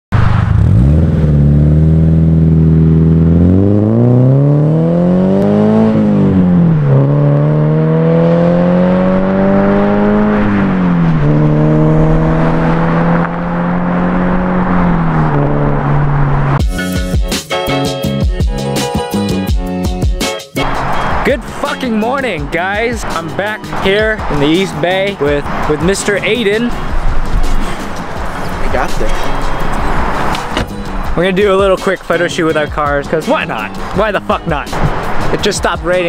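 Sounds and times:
car engine accelerating hard: 0:00.1 - 0:16.6, 0:22.6 - 0:31.2.

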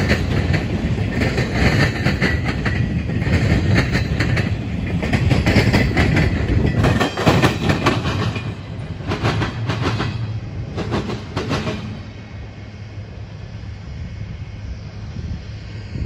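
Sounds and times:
train wheels clacking: 0:00.0 - 0:12.4
low train rumble: 0:00.0 - 0:16.0.

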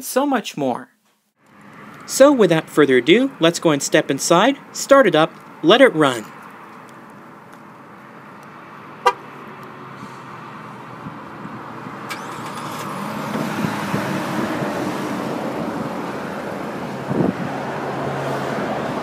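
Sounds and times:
car engine idling: 0:06.3 - 0:17.0
car horn chirp: 0:09.0 - 0:09.3.

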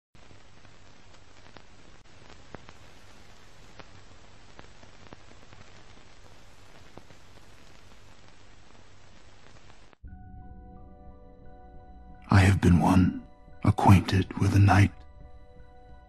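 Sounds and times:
static hiss: 0:00.2 - 0:10.0.

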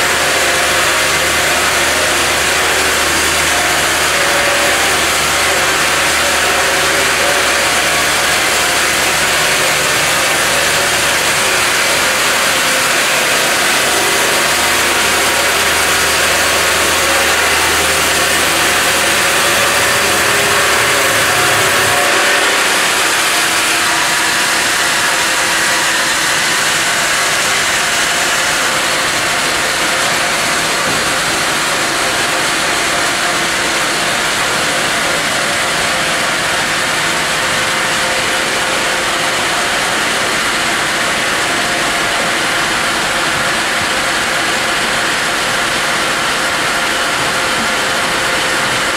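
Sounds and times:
motor hum: 0:00.0 - 0:32.6
bandsaw blade sawing log: 0:00.0 - 0:48.9.

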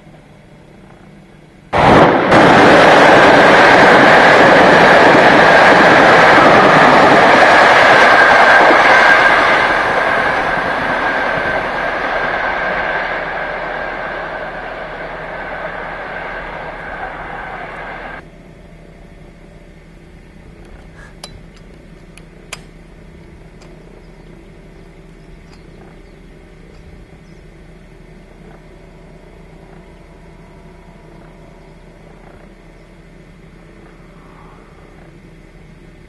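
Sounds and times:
low background hum: 0:00.0 - 0:02.6, 0:09.3 - 0:36.0
sharp clicks: 0:20.6 - 0:24.4.

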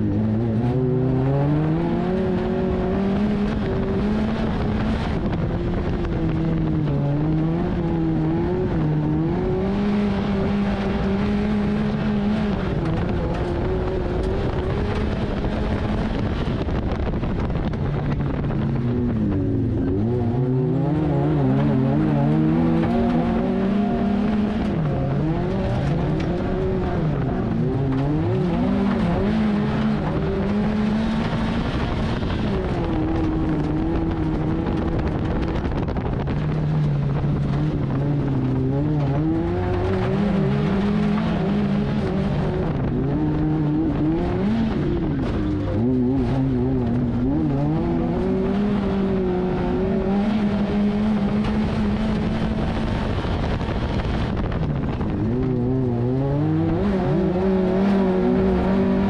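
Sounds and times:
car engine revving: 0:00.0 - 0:59.0
tyre and chassis rush: 0:00.0 - 0:59.0.

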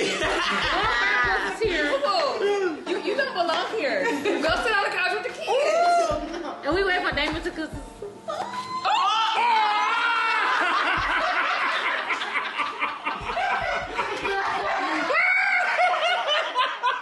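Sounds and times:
people laughing hard: 0:00.0 - 0:04.6, 0:09.4 - 0:17.0.

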